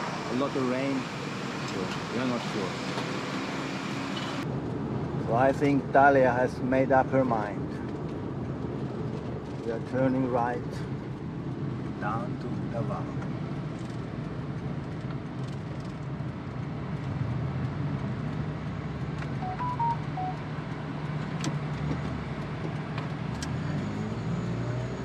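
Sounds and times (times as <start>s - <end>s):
road noise: 0.0s - 25.0s
short beeps: 19.4s - 20.4s.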